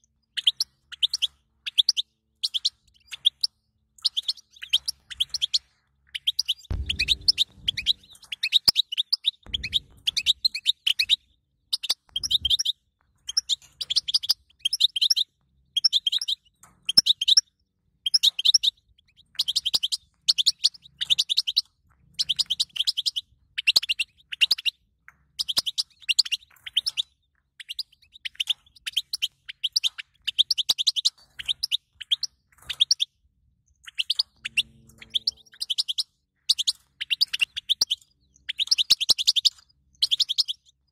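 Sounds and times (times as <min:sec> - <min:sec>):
finch twittering: 0:00.4 - 0:12.7, 0:33.8 - 0:40.7.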